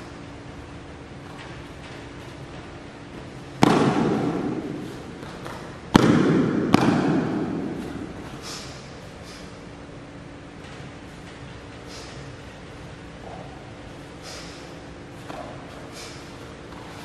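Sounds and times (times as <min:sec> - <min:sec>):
sharp slap-like impacts echoing: 0:03.5 - 0:09.4.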